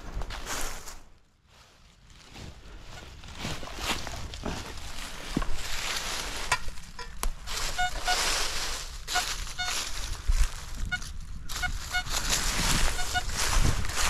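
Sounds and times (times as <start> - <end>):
rustling: 0.0 - 14.0
metal detector beeps: 7.6 - 8.3, 9.1 - 9.8, 10.8 - 12.2, 12.8 - 13.4.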